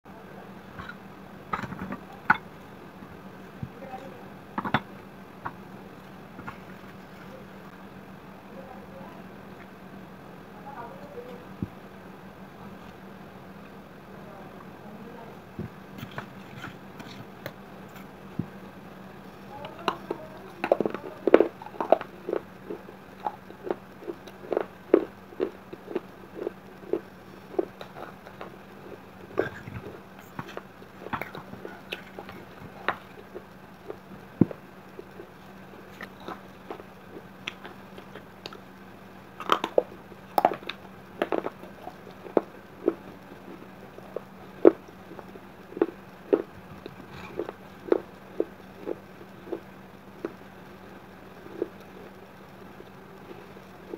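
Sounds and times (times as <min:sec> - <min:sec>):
faint steady hum: 0:00.0 - 0:53.9
crunching and chewing clay: 0:03.5 - 0:07.8, 0:15.6 - 0:53.9.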